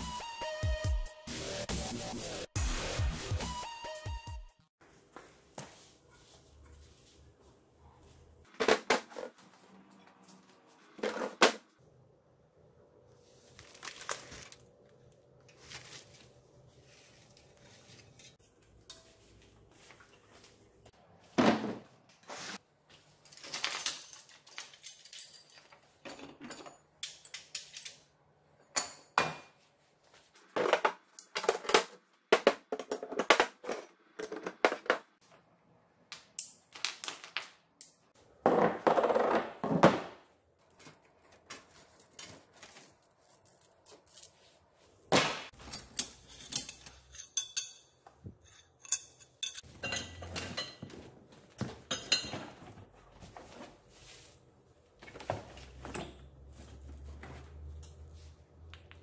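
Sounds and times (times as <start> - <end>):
metal parts clattering: 23.2 - 28.1, 45.6 - 50.8
metal parts clinking and clanking: 23.2 - 29.2, 45.6 - 50.9.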